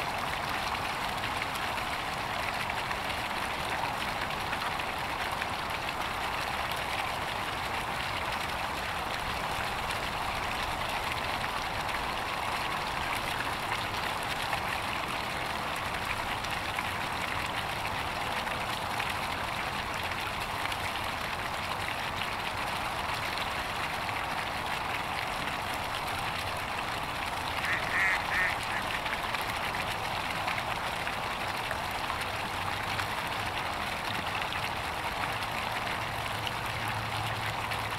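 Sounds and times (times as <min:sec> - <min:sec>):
duck quacking: 0:27.6 - 0:29.0.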